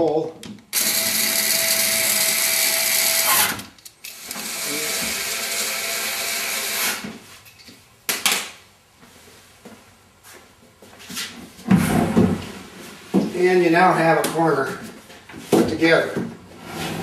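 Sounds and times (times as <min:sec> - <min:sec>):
electric screwdriver driving screws: 0:00.7 - 0:07.0.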